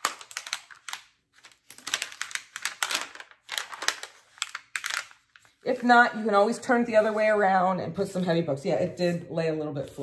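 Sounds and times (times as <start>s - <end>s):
plastic cover crinkling: 0.0s - 7.1s.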